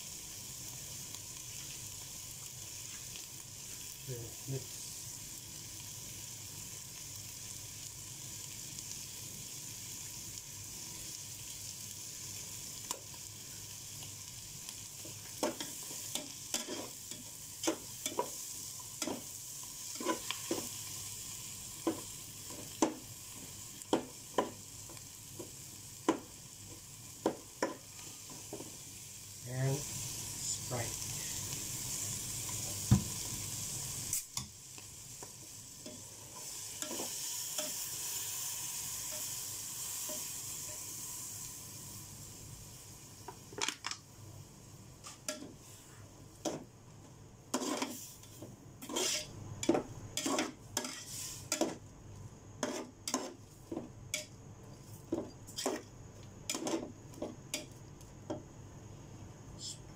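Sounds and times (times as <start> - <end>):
shrimp sizzling in a pot: 0.0 - 59.8
metal ladle scraping a pot: 47.5 - 48.0, 48.8 - 49.3.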